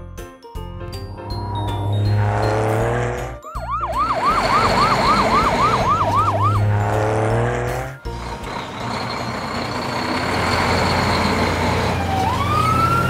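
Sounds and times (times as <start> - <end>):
cartoon siren yelping: 3.5 - 6.7.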